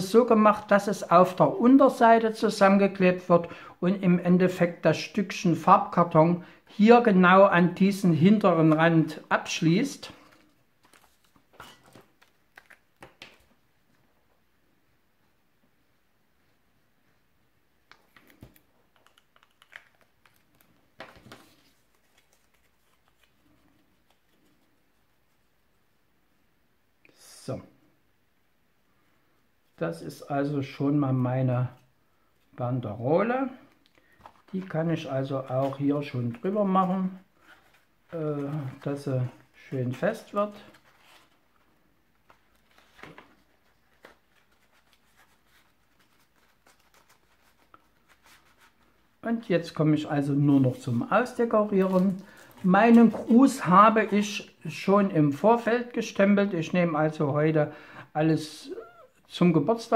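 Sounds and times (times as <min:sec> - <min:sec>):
card rustling: 0:08.2 - 0:14.0, 0:17.9 - 0:25.4, 0:33.6 - 0:49.2, 0:50.2 - 0:54.6.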